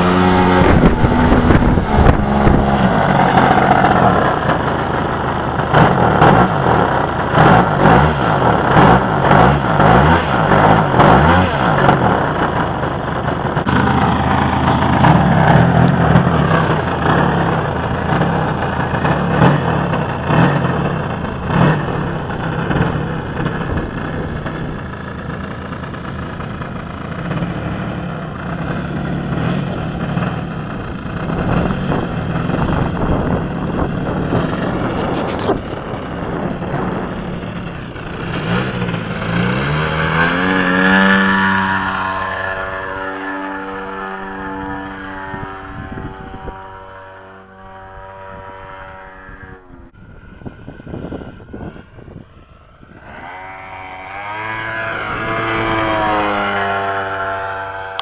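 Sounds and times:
model plane engine running: 0.0s - 58.0s.

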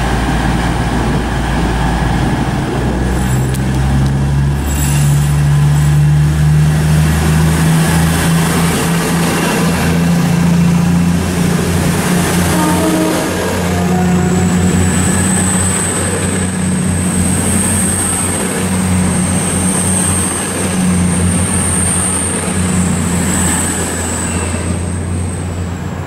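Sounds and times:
diesel train passing: 0.0s - 26.0s.

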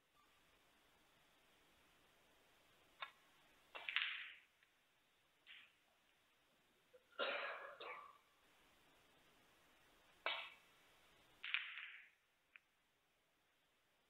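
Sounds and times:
snooker balls clicking: 2.9s - 4.8s, 11.3s - 12.8s.

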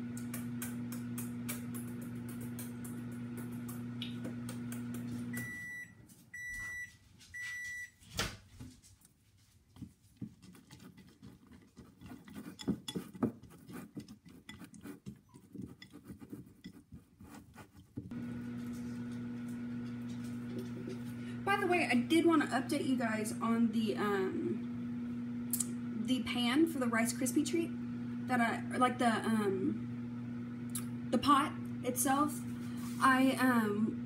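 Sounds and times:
microwave oven humming: 0.0s - 8.0s, 18.1s - 34.0s
microwave beeps: 5.2s - 8.0s
spatula scraping glass bowl: 10.3s - 17.9s.

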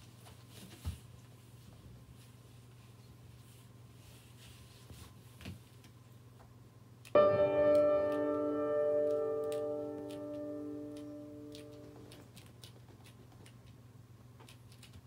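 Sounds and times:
piano chord ringing: 7.2s - 12.1s.

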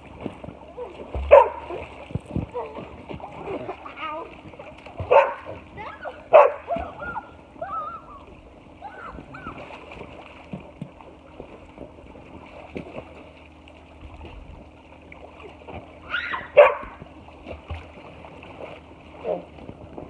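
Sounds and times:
light water splashing: 0.0s - 20.0s
dog barking: 1.3s - 1.8s, 5.1s - 5.5s, 6.3s - 6.8s, 16.6s - 16.9s
dog yelping: 6.0s - 8.2s, 16.1s - 16.9s.

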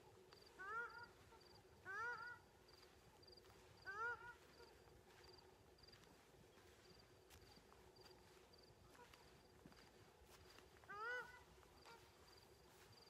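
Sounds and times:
honk-like animal call: 0.6s - 2.4s, 3.9s - 4.8s, 10.8s - 12.2s.

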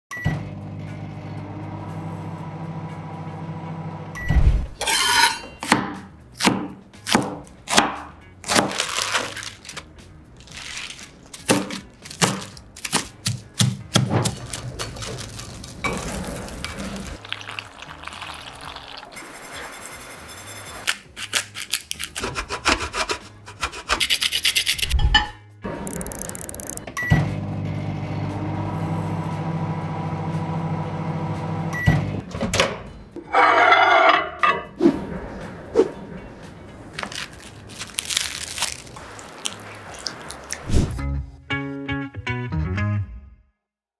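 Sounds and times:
microwave oven humming: 0.1s - 4.2s, 27.0s - 32.2s
knife chopping on wooden board: 5.6s - 8.7s, 11.4s - 14.4s.

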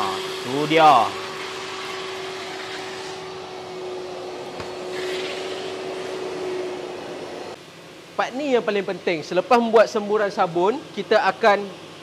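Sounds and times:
vacuum motor running: 0.0s - 7.6s.

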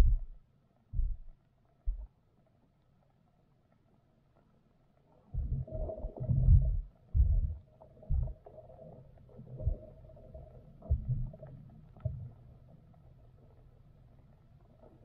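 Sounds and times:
muffled underwater thumps: 0.0s - 0.4s, 1.0s - 1.3s, 1.9s - 2.1s, 5.4s - 8.4s, 9.6s - 9.9s, 10.8s - 11.4s.

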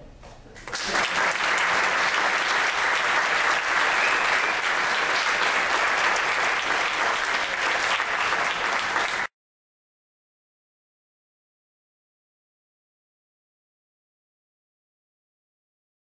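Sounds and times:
audience applauding: 0.6s - 9.3s.

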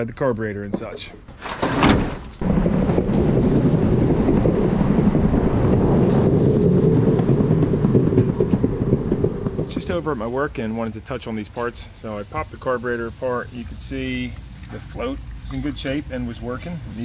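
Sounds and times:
skateboard wheels rumbling on concrete: 1.4s - 17.0s
wind on microphone: 2.4s - 17.0s.

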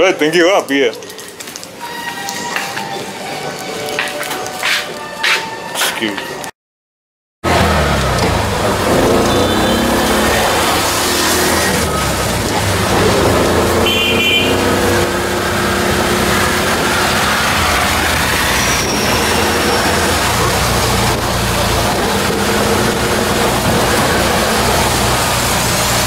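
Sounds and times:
tyres hissing on wet road: 7.5s - 26.0s.

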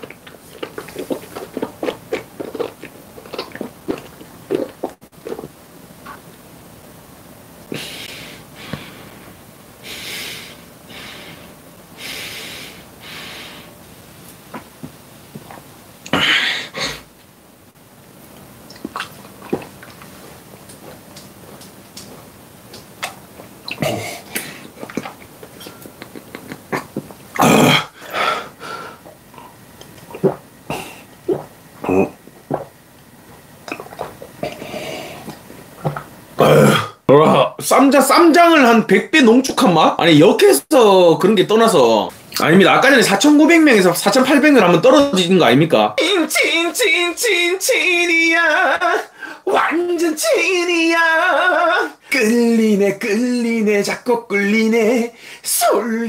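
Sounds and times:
man gulping a drink: 0.0s - 6.4s, 18.3s - 37.0s
man grunting: 27.4s - 27.9s
man blowing exhale: 27.8s - 29.1s
man breathing out hard: 49.1s - 49.5s.

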